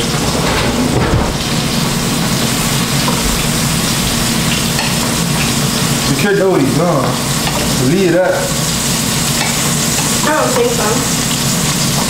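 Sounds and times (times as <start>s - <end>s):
burger patties sizzling in pan: 4.3s - 12.0s.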